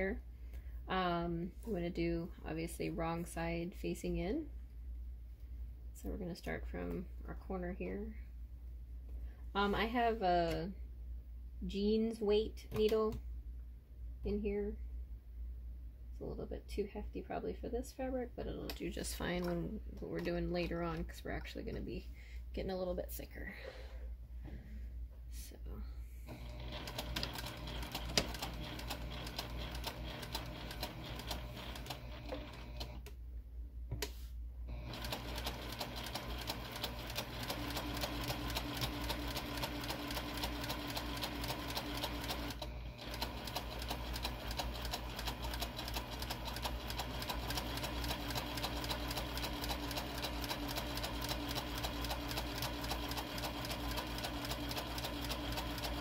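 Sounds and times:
sewing machine stitching: 26.3s - 33.0s, 34.7s - 56.0s.

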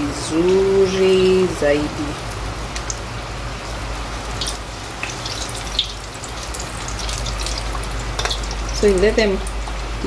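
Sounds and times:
food deep-frying in oil: 0.0s - 10.0s
oil popping: 4.3s - 8.8s.

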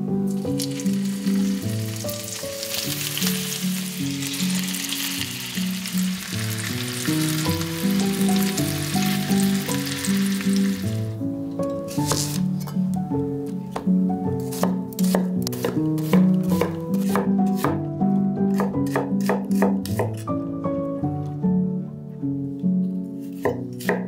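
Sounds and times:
light instrumental music: 0.0s - 24.0s
chicken sizzling in hot fat: 0.2s - 11.2s.

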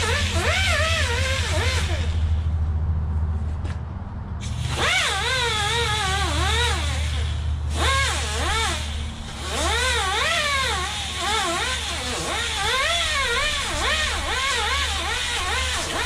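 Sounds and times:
angle grinder whining: 0.0s - 2.5s, 4.4s - 16.0s.

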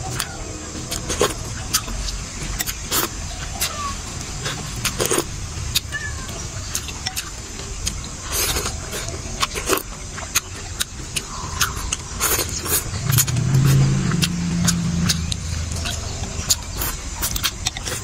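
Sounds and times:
chewing: 0.0s - 6.0s, 6.6s - 18.0s
low droning hum: 0.0s - 18.0s.

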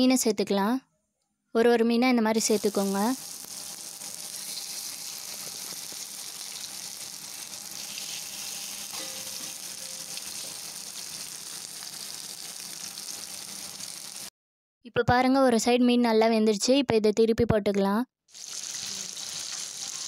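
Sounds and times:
fish sizzling in hot oil: 2.4s - 14.3s, 18.3s - 20.0s.

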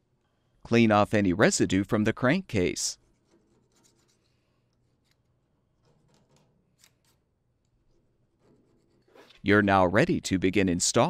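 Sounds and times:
faint scratching and rubbing: 3.0s - 7.2s, 7.8s - 9.6s.

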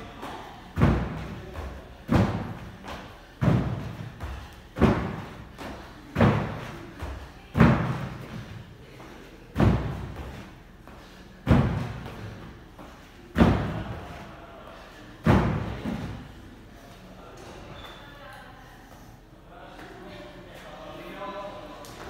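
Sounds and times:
heavy thuds on a wooden box: 0.8s - 2.7s, 3.4s - 5.4s.

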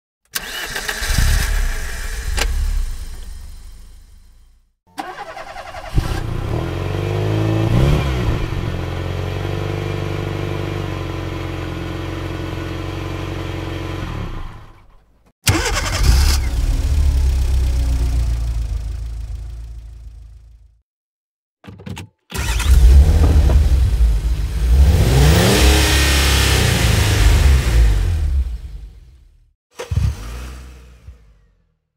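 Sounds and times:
car engines starting: 0.3s - 9.0s, 15.5s - 20.4s, 22.3s - 29.2s, 29.8s - 31.7s
car engine revving and idling: 5.8s - 14.7s, 16.0s - 20.6s, 22.4s - 31.8s.

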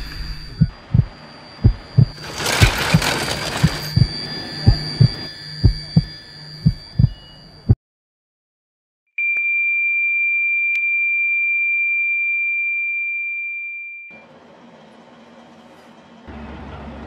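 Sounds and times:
heart monitor flatline tone: 0.0s - 7.8s.

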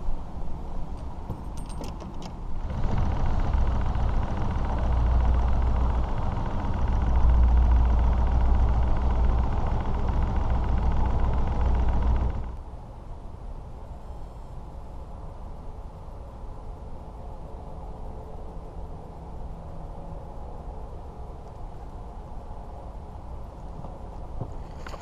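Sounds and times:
boat engine rumble: 0.0s - 12.8s.

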